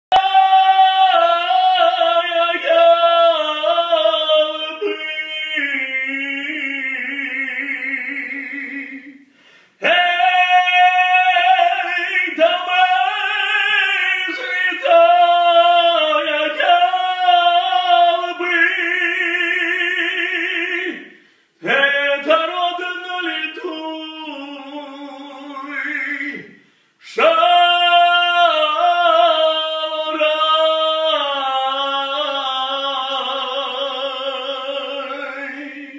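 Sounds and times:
man singing unaccompanied: 0.1s - 35.9s.

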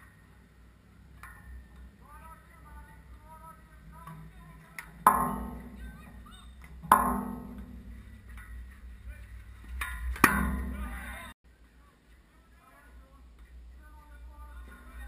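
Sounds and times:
steady low rumble: 0.0s - 11.4s
metallic knocks on goal frame: 4.9s - 8.6s, 9.8s - 11.0s.

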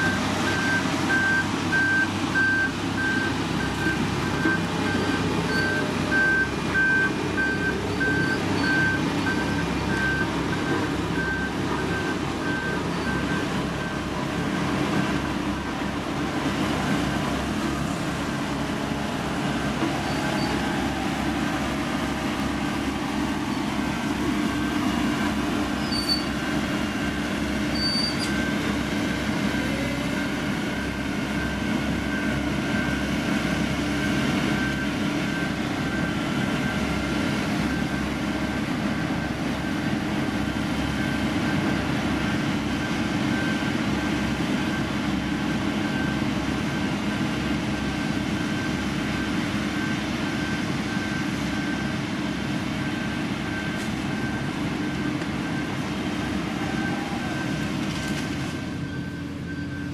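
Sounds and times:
diesel engine rumbling: 0.0s - 59.9s.

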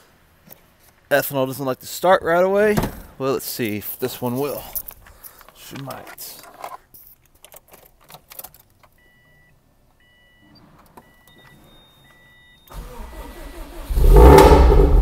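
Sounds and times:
dashboard chime beeping: 9.0s - 12.7s
starter motor cranking engine: 12.7s - 14.6s.

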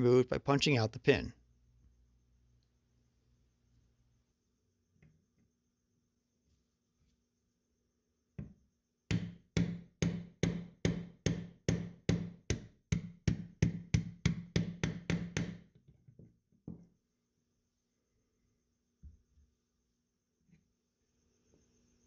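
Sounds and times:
hammer striking metal punch: 9.1s - 15.6s.

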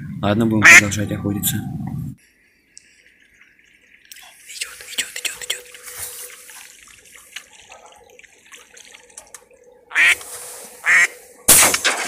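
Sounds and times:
duck quacking: 0.6s - 1.0s, 9.9s - 10.2s, 10.8s - 11.2s.

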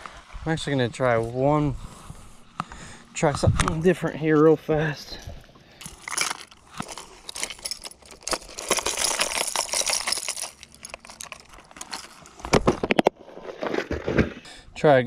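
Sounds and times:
fishing lures rattling in box: 5.8s - 14.2s.

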